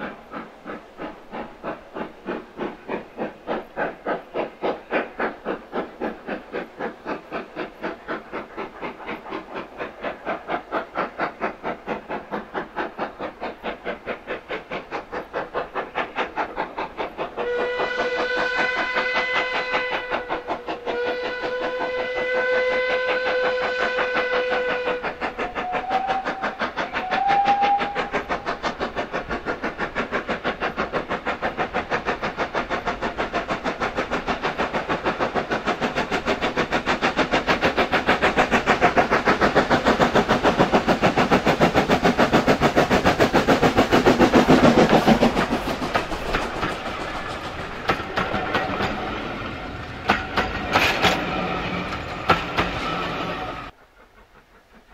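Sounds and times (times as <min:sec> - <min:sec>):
steam locomotive exhaust beats: 0:00.0 - 0:54.9
coaches clickety-clack: 0:00.3 - 0:53.7
steam locomotive whistle: 0:17.4 - 0:28.3.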